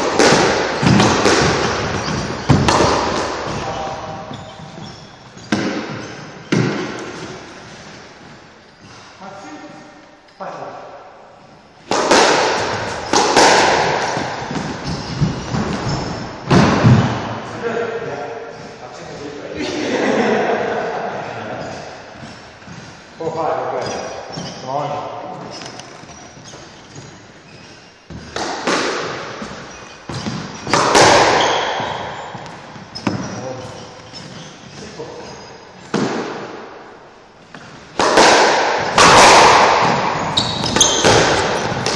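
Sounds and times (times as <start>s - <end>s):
squash ball smacks echoing: 0.0s - 4.8s, 5.4s - 7.5s, 11.8s - 17.5s, 28.1s - 33.6s, 35.8s - 41.9s.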